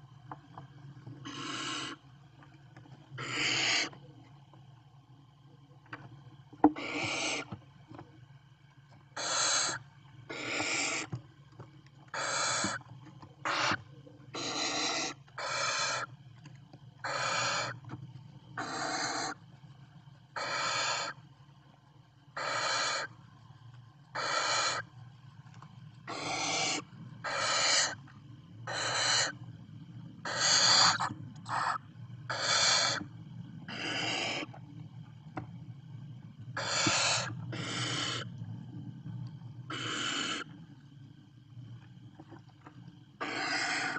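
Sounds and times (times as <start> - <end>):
owl chicks hissing calls: 1.2 - 2.0, 3.2 - 4.0, 6.8 - 7.6, 9.2 - 11.1, 12.2 - 12.8, 13.4 - 13.8, 14.4 - 16.1, 17.0 - 17.8, 18.6 - 19.4, 20.4 - 21.2, 22.4 - 23.1, 24.2 - 24.8, 26.1 - 28.0, 28.6 - 29.4, 30.2 - 33.0, 33.7 - 34.5, 36.6 - 38.3, 39.7 - 40.5, 43.2 - 43.9
low hum: 24.8 - 43.2.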